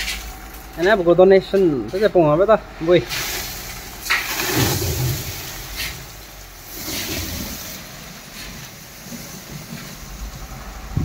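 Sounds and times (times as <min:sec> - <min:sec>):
sand pouring and sliding: 0:03.0 - 0:10.9.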